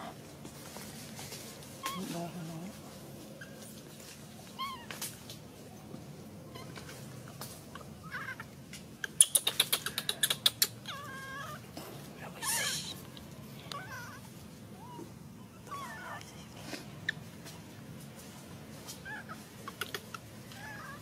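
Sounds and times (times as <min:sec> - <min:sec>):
baby monkey high-pitched cries: 0:04.5 - 0:05.0, 0:07.7 - 0:11.7, 0:12.4 - 0:16.3, 0:18.9 - 0:21.0.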